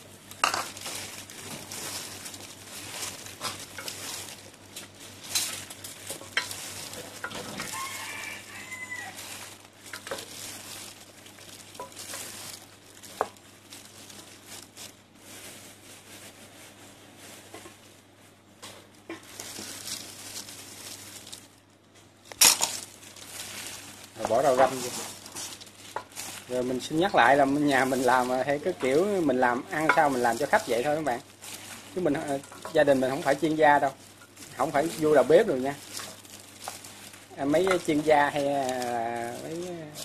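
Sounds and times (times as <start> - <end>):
meat squelching: 0.0 - 16.4, 19.2 - 21.6, 22.3 - 40.0
plastic gloves crinkling: 0.0 - 40.0
rooster crowing faintly: 7.4 - 9.6.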